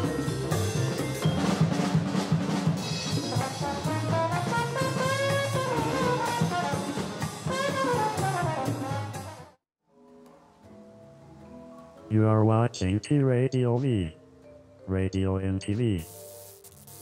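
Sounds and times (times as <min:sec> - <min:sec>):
jazzy brass and drum music: 0:00.0 - 0:09.6.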